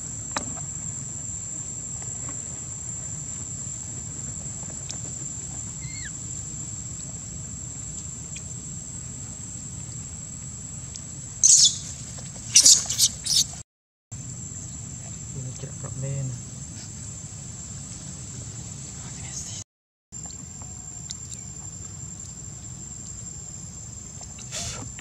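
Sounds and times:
high-pitched insect drone: 0:05.4 - 0:07.6, 0:11.4 - 0:12.0
faint chirp: 0:05.8 - 0:06.2, 0:11.4 - 0:13.6
monkeys squealing: 0:05.8 - 0:06.2, 0:11.4 - 0:11.9, 0:12.5 - 0:13.6.

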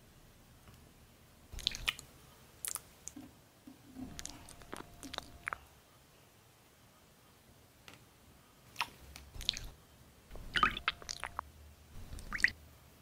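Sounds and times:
wet squelching of jelly-like object: 0:01.5 - 0:02.9, 0:08.8 - 0:11.4, 0:12.0 - 0:12.6.

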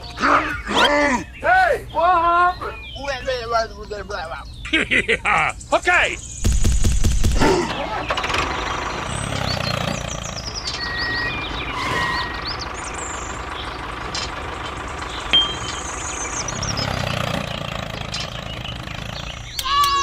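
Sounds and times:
tractor engine rumbling: 0:00.0 - 0:20.0
short high beeps and chirps: 0:15.3 - 0:15.9.

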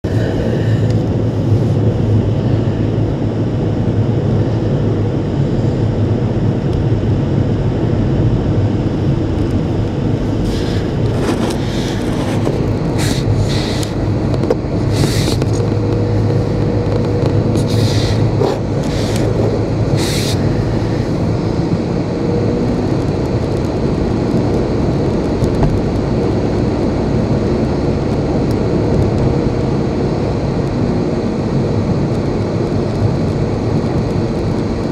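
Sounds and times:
car engine and tyre rumble: 0:00.0 - 0:34.9
brief hissing sounds: 0:14.9 - 0:15.4, 0:20.0 - 0:20.4.

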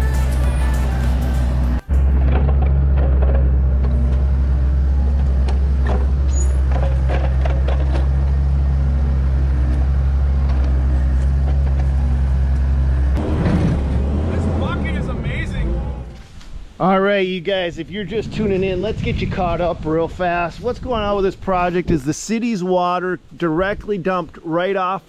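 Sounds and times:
heavy equipment engine running: 0:00.0 - 0:16.2.

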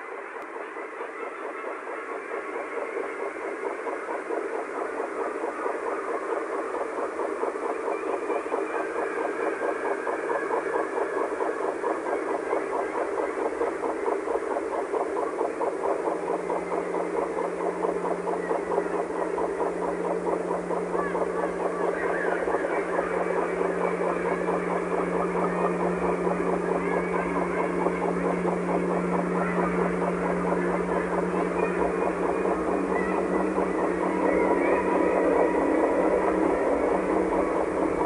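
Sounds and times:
ambient drone music: 0:00.0 - 0:38.0
low steady tone: 0:10.0 - 0:38.0.

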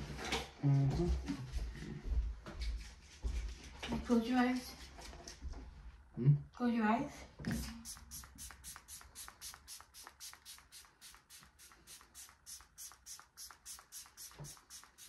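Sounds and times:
spray bottle squirting mist: 0:07.5 - 0:15.0.

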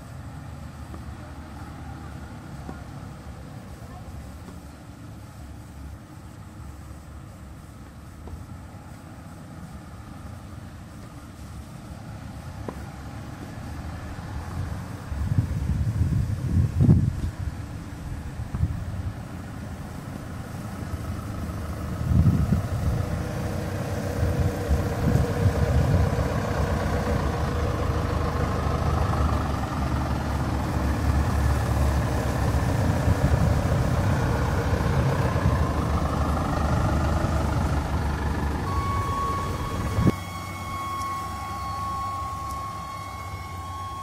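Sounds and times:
buses driving past on wet road: 0:00.0 - 0:44.0
steady high tone: 0:34.0 - 0:44.0.

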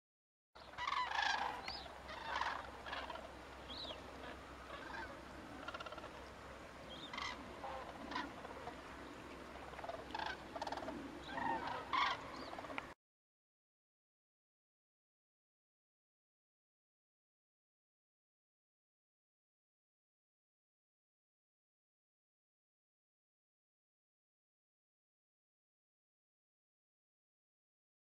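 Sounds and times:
cranes calling: 0:00.6 - 0:13.0.

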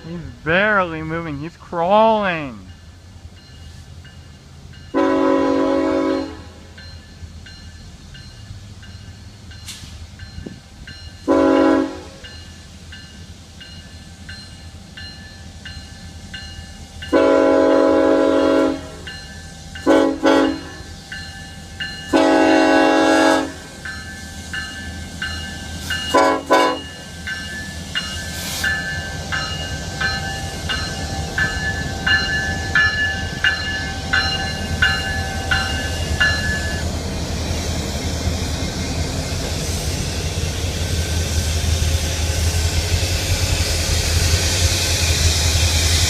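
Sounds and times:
diesel train rumble: 0:00.0 - 0:46.0
crossing bell ringing: 0:00.1 - 0:17.5, 0:18.4 - 0:36.9
train air horn blasts: 0:05.0 - 0:06.8, 0:11.3 - 0:12.2, 0:17.1 - 0:19.1, 0:19.8 - 0:20.9, 0:22.1 - 0:23.8, 0:26.1 - 0:26.9.

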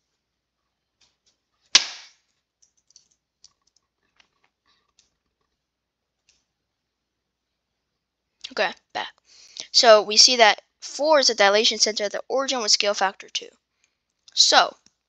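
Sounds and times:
sharp loud knock: 0:01.8 - 0:02.1.

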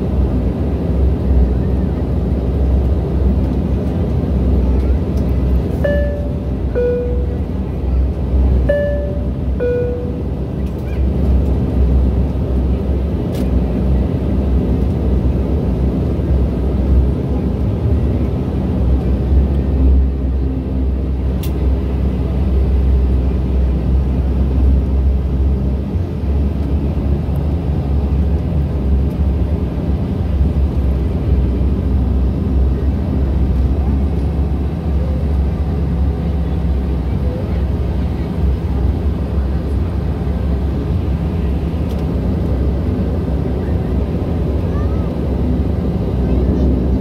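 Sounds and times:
turboprop cabin drone: 0:00.0 - 0:47.0
two-note chime: 0:05.8 - 0:07.5, 0:08.7 - 0:10.3.

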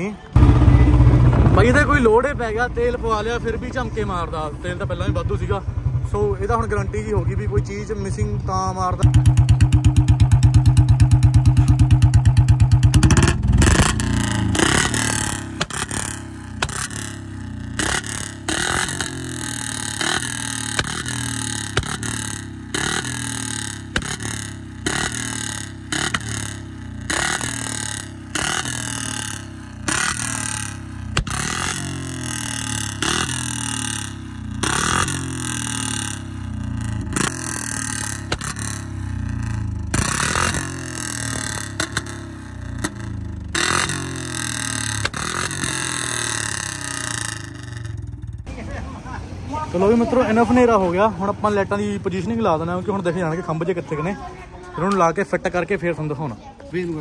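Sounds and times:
motorcycle engine idling: 0:00.0 - 0:57.0
engine revving: 0:00.2 - 0:53.4
exhaust pops: 0:09.0 - 0:48.5.

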